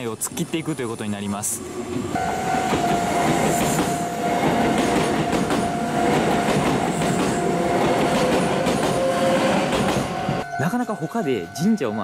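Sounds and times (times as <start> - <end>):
electric train passing: 0.0 - 12.0
level crossing warning bell: 2.2 - 8.1, 10.1 - 12.0
wheels clacking over rail joints: 2.6 - 10.4.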